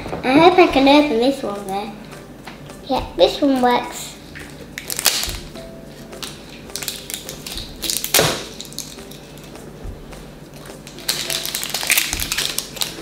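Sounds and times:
plastic egg cracking: 0:04.4 - 0:05.5, 0:06.2 - 0:09.6, 0:10.5 - 0:13.0.

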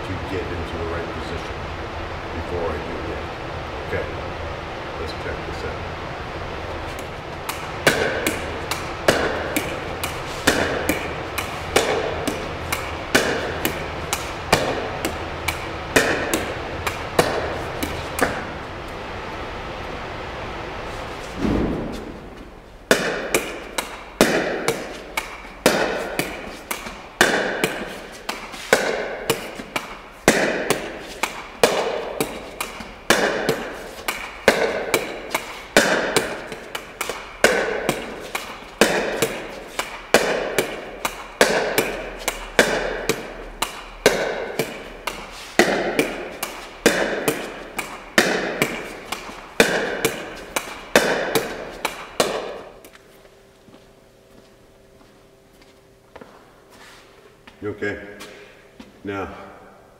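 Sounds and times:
ball knocking wall: 0:07.4 - 0:18.6, 0:21.4 - 0:52.8
paddle hitting ball pops: 0:07.4 - 0:18.6, 0:22.9 - 0:52.9.

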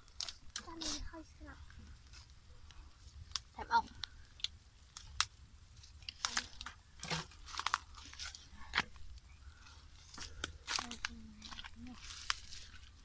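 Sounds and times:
twigs crackling in wood fire: 0:00.0 - 0:13.0.

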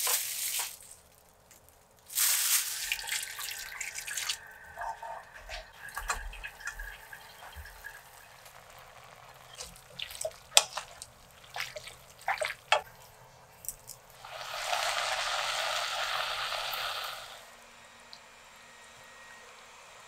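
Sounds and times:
sauce sizzling and bubbling: 0:02.0 - 0:13.3, 0:13.9 - 0:17.5.

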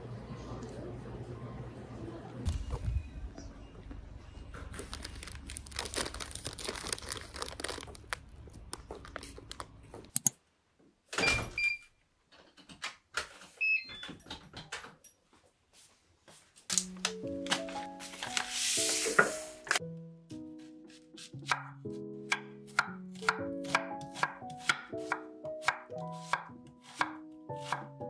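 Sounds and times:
paper bag rustling: 0:04.6 - 0:10.1, 0:17.4 - 0:19.8
door and keys clicking: 0:13.9 - 0:15.2
soft background music: 0:16.7 - 0:28.0.

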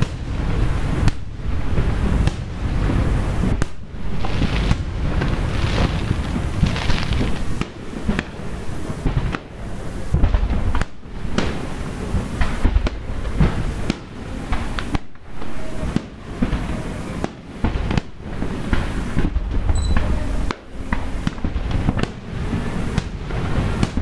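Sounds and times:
low rumble: 0:00.0 - 0:11.4
fireworks bursting: 0:00.0 - 0:24.0.

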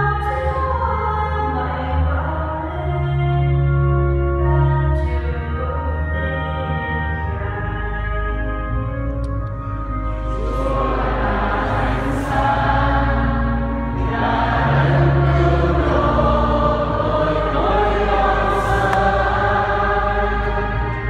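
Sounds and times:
low sustained accompaniment: 0:00.0 - 0:21.0
choir singing a hymn: 0:10.1 - 0:21.0.

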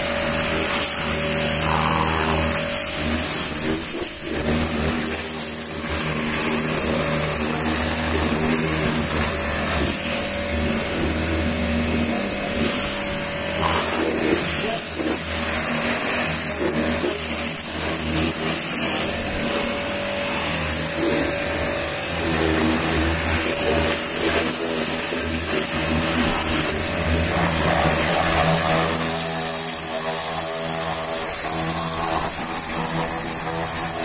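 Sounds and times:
pump motor humming: 0:00.0 - 0:34.0
water jet spraying: 0:00.0 - 0:34.0.

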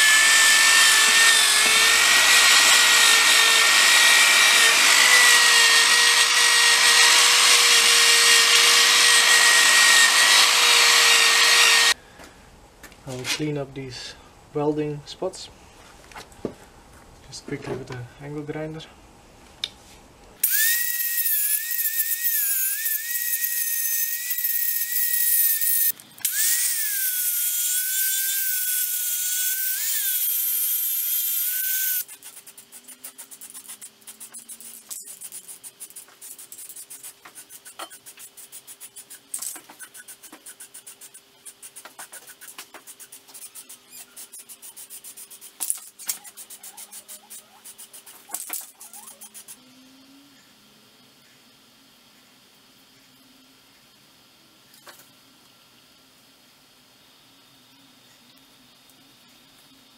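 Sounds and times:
angle grinder whining: 0:00.0 - 0:12.0, 0:20.4 - 0:32.2.

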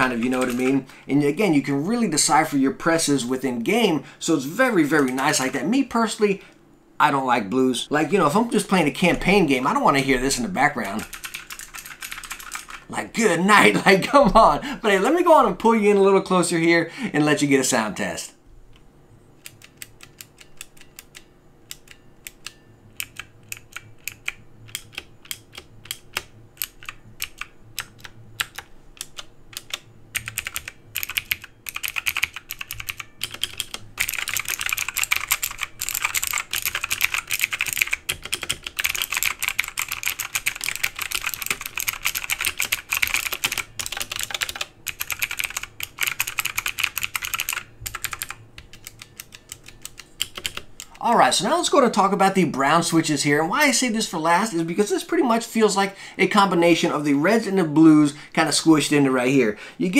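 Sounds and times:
clicky keyboard keys typing: 0:00.0 - 0:00.8, 0:04.9 - 0:05.6, 0:09.2 - 0:12.9, 0:19.4 - 0:51.1.

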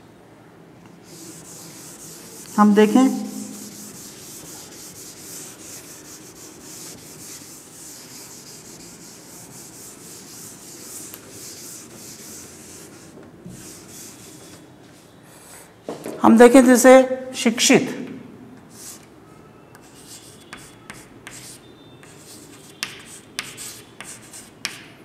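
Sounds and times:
duster rubbing chalkboard: 0:01.0 - 0:14.7.

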